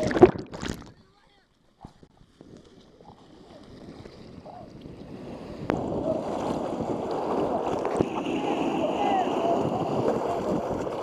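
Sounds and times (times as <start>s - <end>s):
sharp water splash: 0.0s - 1.0s, 5.3s - 11.0s
whitewater rapids rushing: 5.7s - 11.0s.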